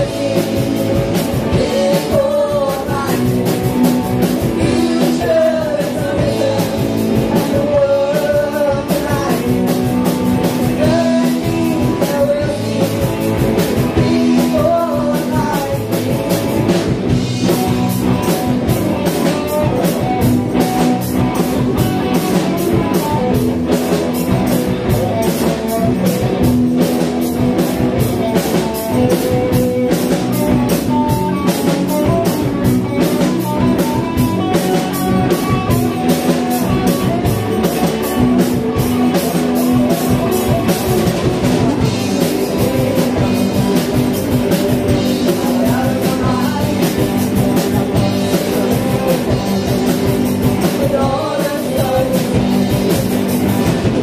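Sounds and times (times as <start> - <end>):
person singing: 0.0 - 16.7, 28.3 - 53.1
drum kit beat: 0.0 - 54.0
electric guitars: 0.0 - 54.0.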